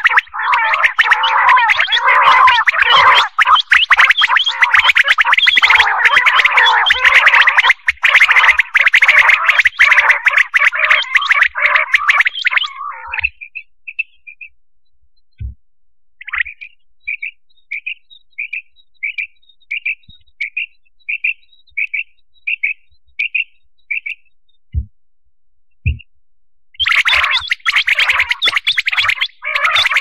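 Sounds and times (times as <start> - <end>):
quail calling: 0.0 - 14.4, 26.8 - 30.0
dull low thumps: 15.3 - 15.7, 24.7 - 25.0, 25.8 - 26.2.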